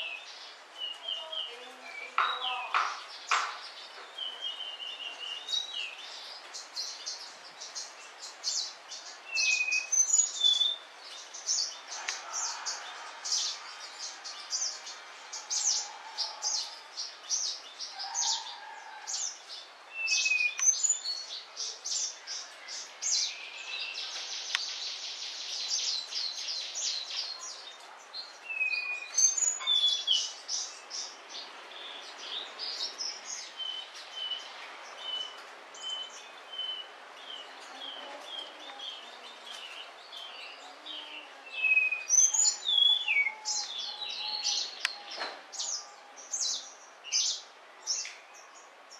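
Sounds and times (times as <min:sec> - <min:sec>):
small birds chirping: 0:00.0 - 0:48.9.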